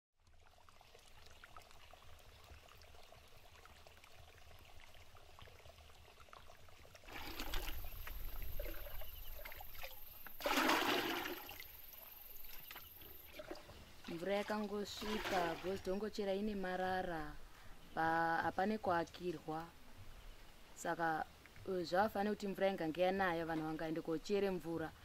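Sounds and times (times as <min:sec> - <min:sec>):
shallow stream trickling: 0:00.2 - 0:25.0
water pouring into plastic bucket: 0:06.9 - 0:15.9.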